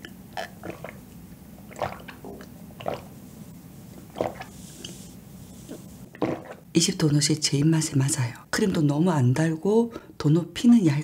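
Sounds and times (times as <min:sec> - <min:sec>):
person gulping and swallowing: 0:00.0 - 0:03.2, 0:03.9 - 0:05.0, 0:05.7 - 0:06.7.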